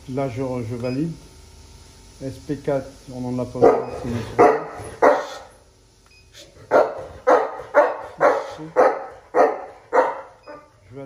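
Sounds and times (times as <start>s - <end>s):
dog barking: 3.6s - 5.5s, 6.6s - 10.7s.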